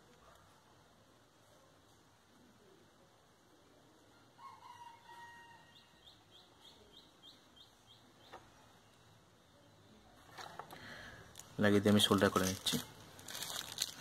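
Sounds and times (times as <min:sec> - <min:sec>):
faint rooster crowing: 0:04.1 - 0:06.2.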